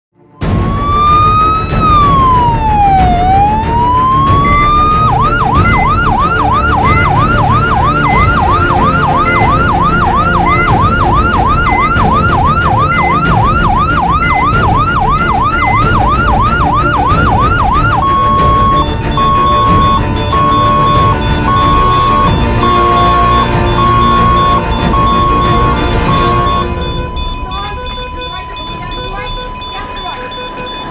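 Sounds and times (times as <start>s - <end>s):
emergency vehicle siren: 0.4s - 30.9s.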